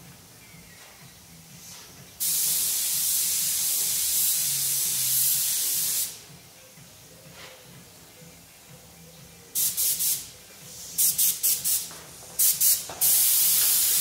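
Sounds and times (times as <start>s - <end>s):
air spray gun hissing: 1.6s - 6.2s, 9.6s - 14.0s.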